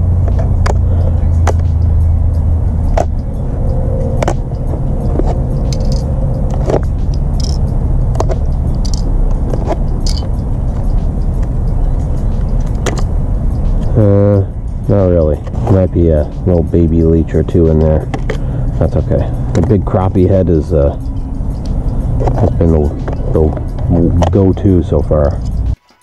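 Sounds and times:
low rumble: 0.0 - 25.7
binder clips clicking: 5.1 - 10.4.

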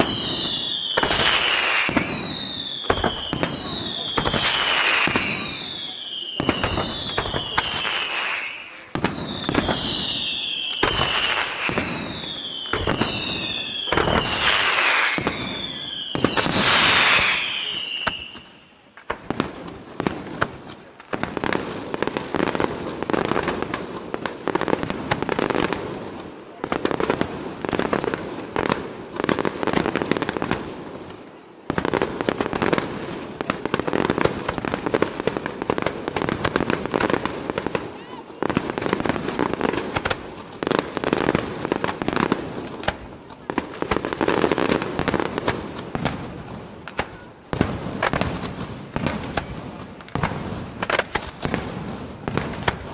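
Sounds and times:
falling firework whistles: 0.0 - 19.0
firework bangs and crackling: 0.0 - 52.9.

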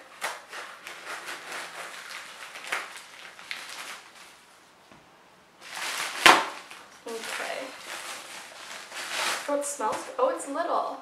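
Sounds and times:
scissors cutting plastic bag: 0.2 - 4.1, 5.7 - 10.1.

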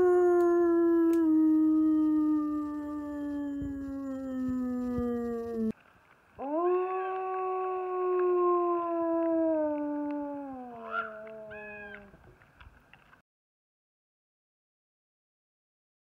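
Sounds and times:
wolf howling: 0.0 - 5.8, 6.4 - 12.1.

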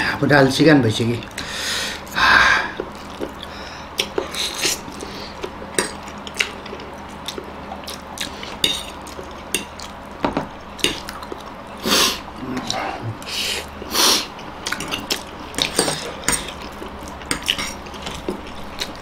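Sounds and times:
noodle slurping and chewing: 2.7 - 10.0.

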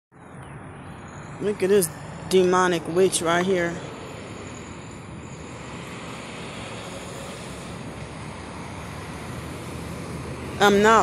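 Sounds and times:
road traffic hiss and rumble: 0.1 - 11.0.

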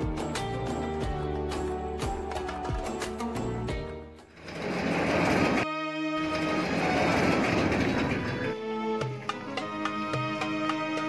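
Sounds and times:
background music with beat: 0.0 - 4.3, 8.8 - 11.0
metal sliding gate rattling: 4.3 - 5.6, 6.2 - 8.6.

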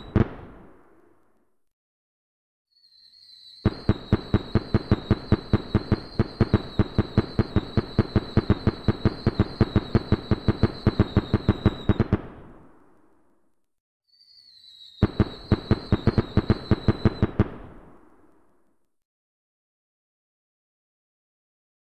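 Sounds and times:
firework whistle: 2.7 - 12.2, 14.1 - 17.5
rapid firework bangs: 3.6 - 12.7, 15.0 - 18.0.

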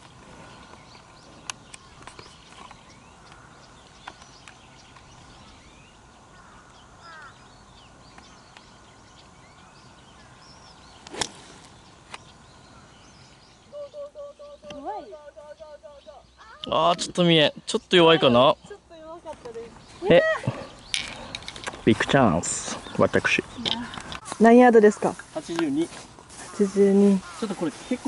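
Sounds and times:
bird chirps: 0.0 - 28.0
golf club striking ball: 11.0 - 11.5.

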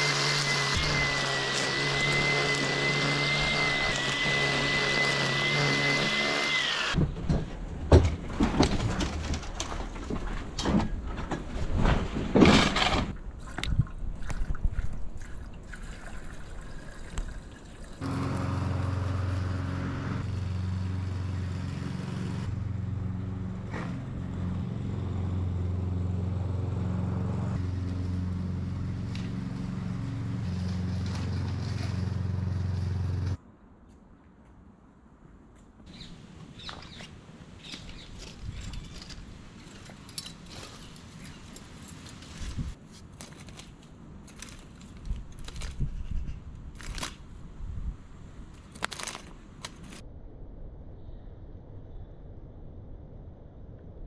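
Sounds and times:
string trimmer whining: 0.0 - 7.0, 18.0 - 23.1
knocks and clatter: 7.0 - 13.2
lawn mower droning: 18.0 - 33.4.

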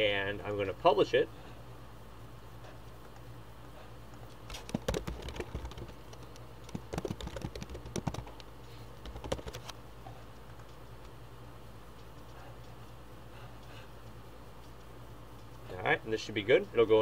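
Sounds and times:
typing on computer keyboard: 4.5 - 8.4, 9.0 - 9.7.

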